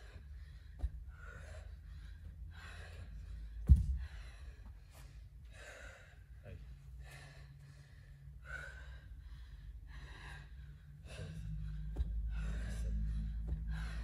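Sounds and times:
woman panting and gasping: 0.0 - 14.0
low rumble: 6.4 - 14.0.

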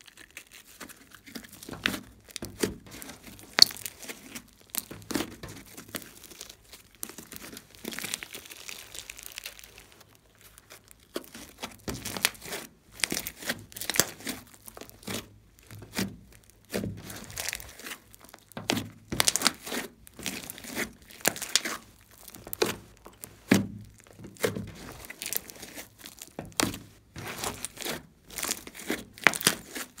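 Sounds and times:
slime squelching and crackling: 0.0 - 30.0.

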